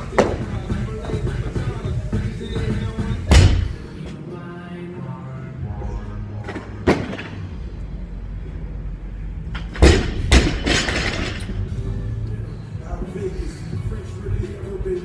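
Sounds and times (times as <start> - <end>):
hip-hop music: 0.0 - 6.8, 11.3 - 15.0
barbell dropped heavy thuds: 3.3 - 3.8, 9.6 - 11.4.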